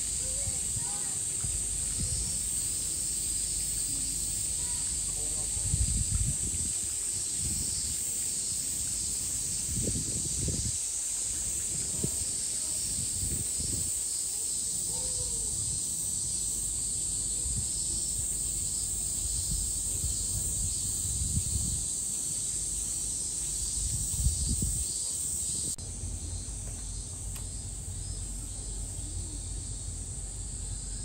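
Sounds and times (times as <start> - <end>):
cicadas buzzing: 0.0 - 31.0
pulsing insect call: 0.0 - 31.0
wind rumble on microphone: 0.2 - 2.4, 5.4 - 8.0, 9.5 - 14.1, 19.0 - 22.0, 23.5 - 28.3.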